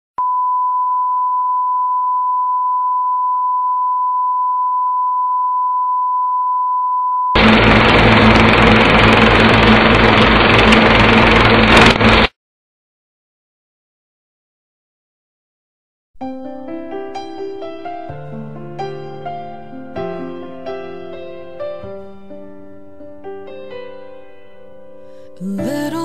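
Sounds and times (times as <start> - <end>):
steady test tone beep: 0.2 - 7.4
static-like hiss: 7.4 - 12.3.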